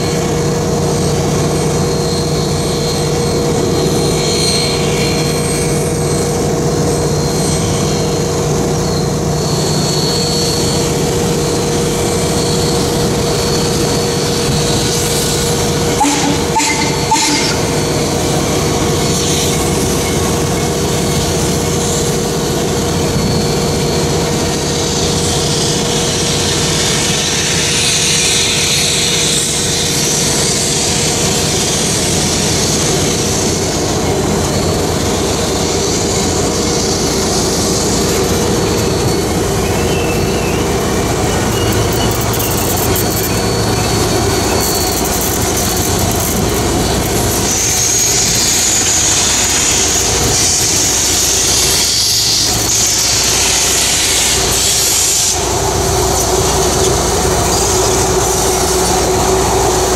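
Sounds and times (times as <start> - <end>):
steam hissing: 0.0 - 59.9
train rumbling: 0.0 - 59.9
steady mid-pitched tone: 12.7 - 19.1.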